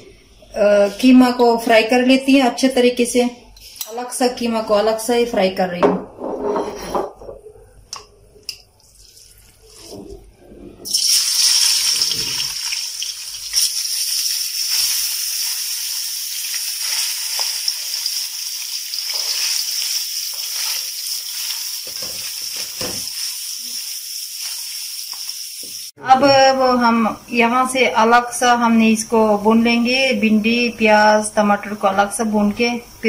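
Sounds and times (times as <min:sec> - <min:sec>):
meat sizzling in hot oil: 0:10.9 - 0:26.0
spatula stirring in pan: 0:18.9 - 0:23.7.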